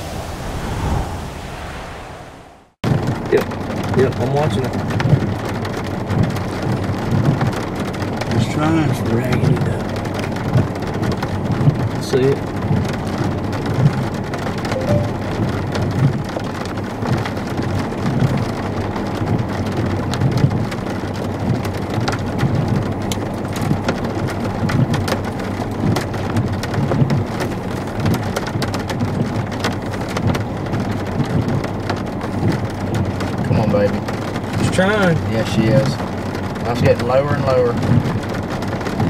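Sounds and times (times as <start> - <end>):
low rumble: 0.0 - 2.9
heavy rain on a vehicle: 2.8 - 39.0.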